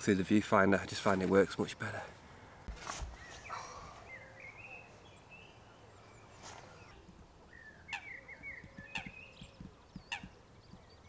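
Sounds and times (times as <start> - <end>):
small birds chirping: 2.8 - 11.0
sharp clicks: 8.6 - 10.8.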